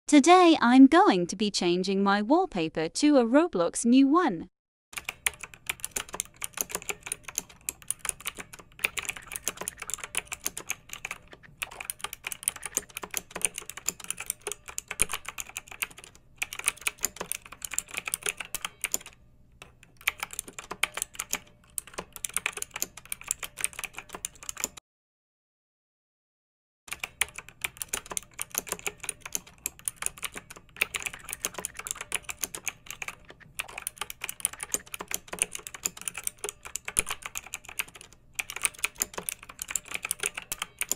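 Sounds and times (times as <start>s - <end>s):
rapid keyboard-like clicks: 5.0s - 24.8s, 26.9s - 40.9s.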